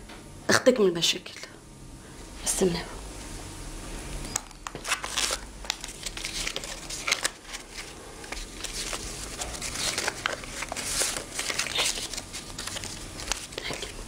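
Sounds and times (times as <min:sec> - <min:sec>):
banknotes rustling and crinkling: 0:04.6 - 0:14.0.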